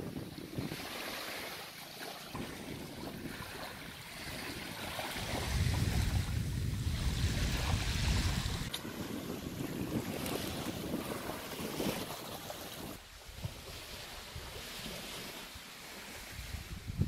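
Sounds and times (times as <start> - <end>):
wind buffeting microphone: 0.0 - 1.5, 2.2 - 15.2, 15.9 - 17.0
surf rushing: 2.4 - 13.0.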